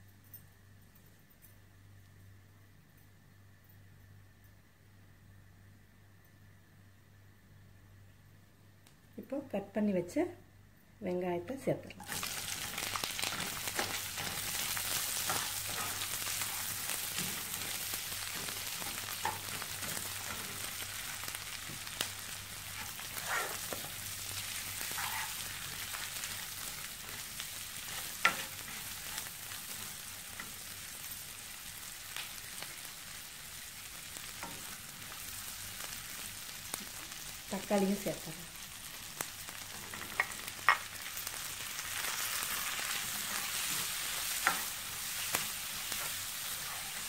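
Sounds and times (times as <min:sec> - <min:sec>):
onions sizzling in a pan: 0:11.9 - 0:47.0.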